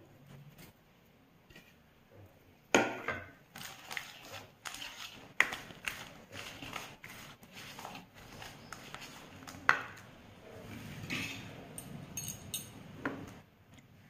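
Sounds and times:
whisk scraping metal bowl: 3.5 - 10.0, 10.7 - 11.6.

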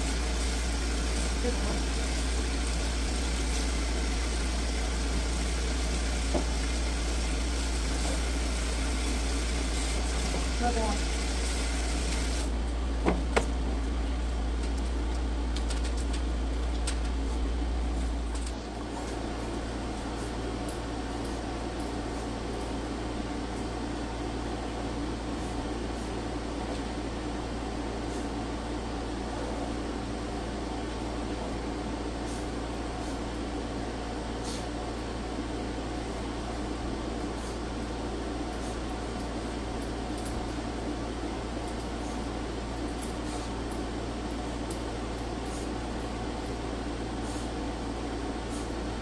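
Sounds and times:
hiss: 0.0 - 12.5, 34.4 - 34.8, 47.2 - 47.6, 48.4 - 48.9
steady electric hum: 0.0 - 49.0.

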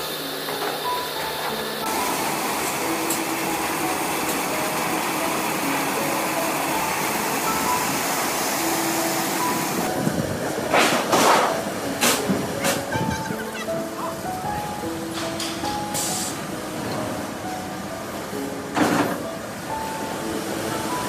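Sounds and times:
rushing hissing bursts: 0.0 - 10.1
factory machinery rumbling: 0.0 - 21.0.

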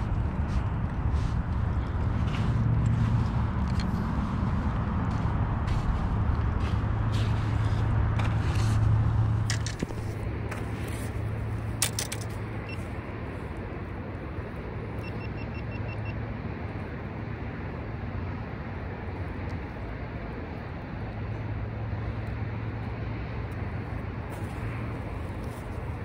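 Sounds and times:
low outdoor rumble: 0.0 - 26.0
clicks and rustles handling fish: 8.2 - 12.6.

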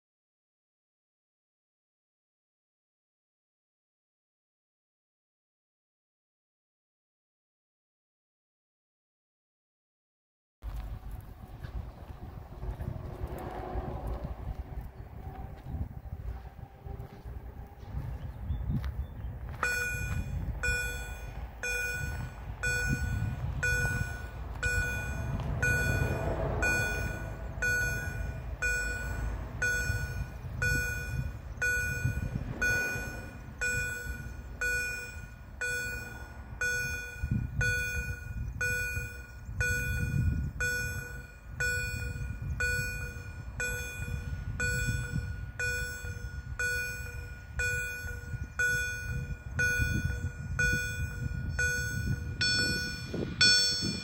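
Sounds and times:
low rumble: 10.6 - 54.0
level crossing warning beeps: 19.6 - 54.0.

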